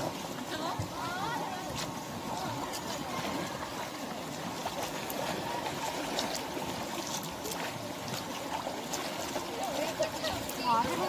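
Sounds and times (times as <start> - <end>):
water sloshing and splashing: 0.0 - 11.0
faint children's voices: 0.4 - 4.2.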